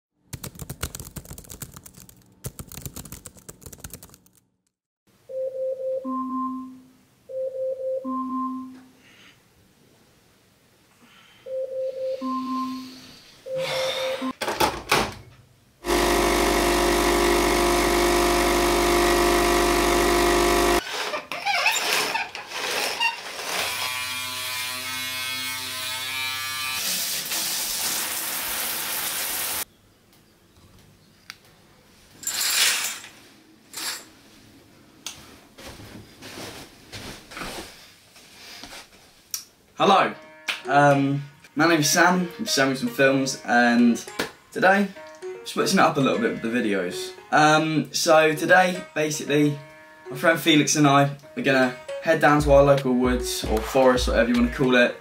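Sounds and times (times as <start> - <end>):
coffee machine pump buzzing: 15.8 - 20.8.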